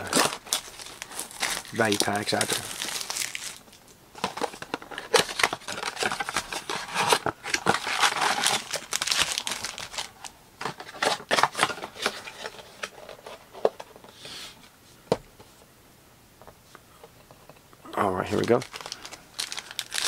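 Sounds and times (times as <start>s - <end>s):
plastic wrap crinkling: 0.0s - 12.8s, 18.1s - 20.0s.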